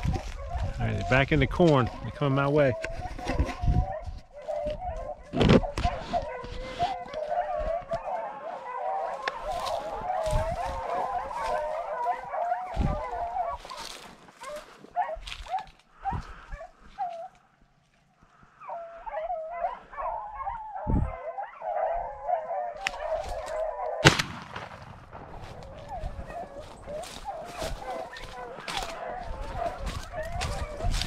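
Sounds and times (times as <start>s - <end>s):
dogs baying and howling: 0.0s - 24.2s, 25.1s - 31.0s
sharp crack: 24.0s - 25.4s.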